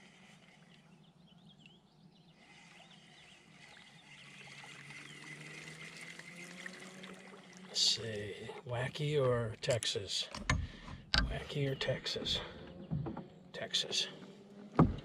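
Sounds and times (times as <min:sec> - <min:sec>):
small birds chirping: 0:00.0 - 0:07.1, 0:11.0 - 0:14.3
fishing reel whirring: 0:03.4 - 0:07.5.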